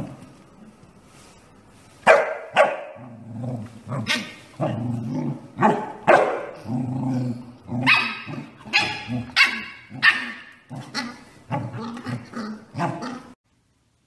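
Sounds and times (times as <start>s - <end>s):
dog barking: 2.0s - 3.0s, 5.6s - 6.6s, 7.9s - 10.4s
dog growling: 3.0s - 5.8s, 6.5s - 13.4s.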